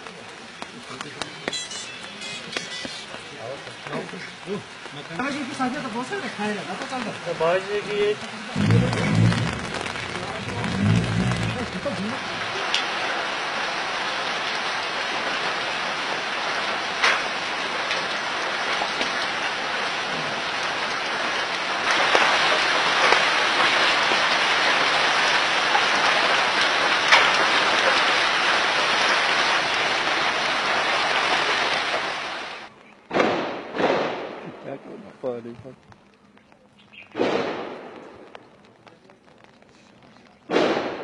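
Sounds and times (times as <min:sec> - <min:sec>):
loud steady hiss: 0:04.0 - 0:13.3
sharp cracks: 0:08.6 - 0:12.9, 0:17.0 - 0:18.1, 0:21.8 - 0:29.5, 0:32.8 - 0:34.9, 0:35.7 - 0:41.0.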